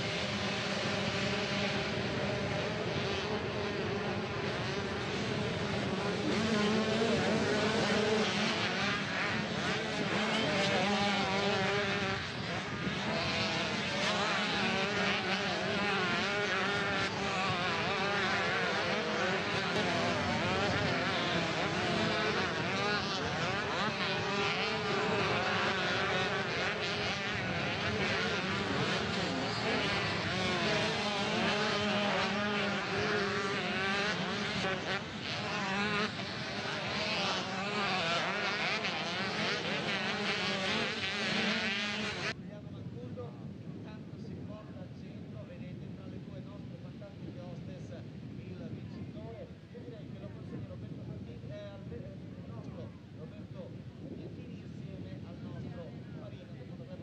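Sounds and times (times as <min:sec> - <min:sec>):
motocross bike engines revving: 0:00.0 - 0:42.4.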